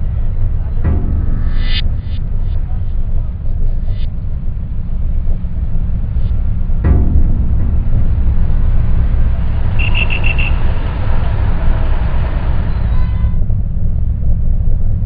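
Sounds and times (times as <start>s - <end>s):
traffic rumble: 0.0s - 15.0s
quick high-pitched beeps: 9.8s - 10.6s.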